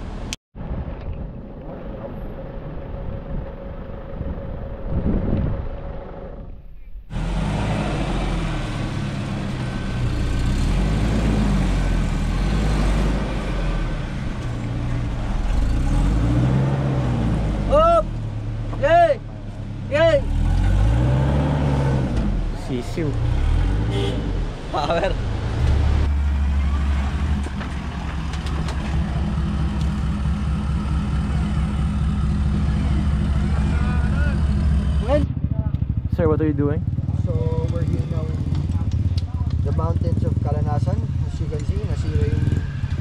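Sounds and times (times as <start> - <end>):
vehicle engine running under load: 0.0 - 43.0.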